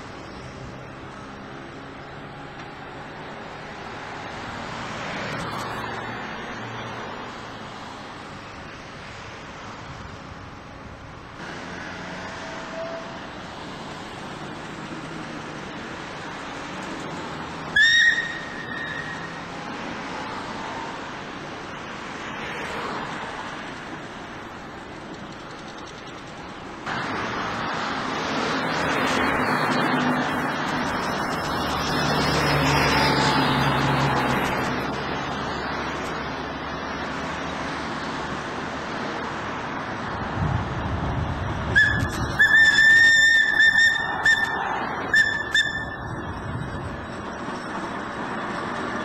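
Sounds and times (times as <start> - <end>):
engine running and road noise: 0.0 - 49.0
passing vehicle hum: 0.0 - 49.0
steam whistle blast: 12.4 - 13.2, 17.8 - 19.4, 41.7 - 46.3.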